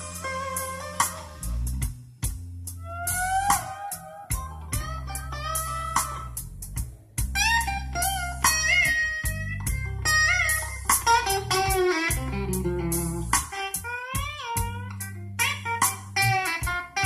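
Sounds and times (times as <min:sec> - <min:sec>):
blues rock music on car stereo: 0:00.0 - 0:17.0.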